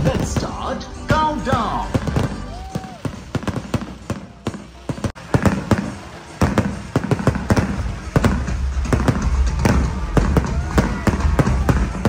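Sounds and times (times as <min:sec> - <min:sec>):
fireworks cracking and popping: 0:00.0 - 0:12.0.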